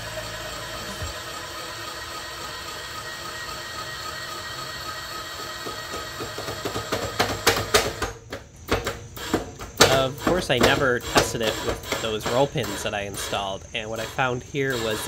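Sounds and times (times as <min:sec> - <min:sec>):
lead screw mechanical running: 0:00.0 - 0:08.0, 0:09.2 - 0:15.0.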